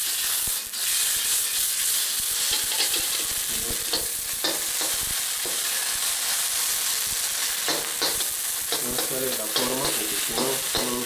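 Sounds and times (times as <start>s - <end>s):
food sizzling in oil: 0.0s - 11.0s
metal spoon scraping pan: 2.4s - 5.0s.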